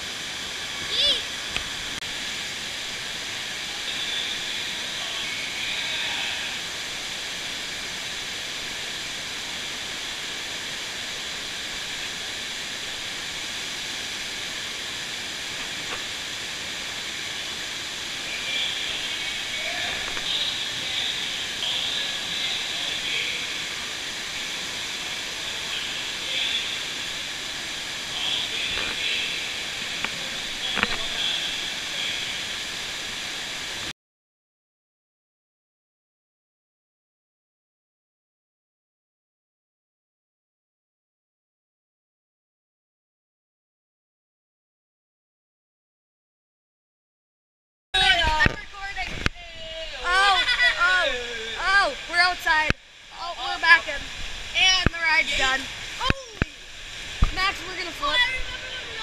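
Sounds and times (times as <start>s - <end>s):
rushing water hiss: 0.0s - 33.9s, 48.0s - 59.0s.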